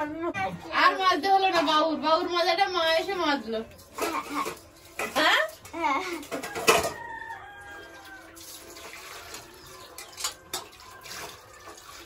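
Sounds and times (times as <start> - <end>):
metal dishes clanking: 3.9 - 7.2.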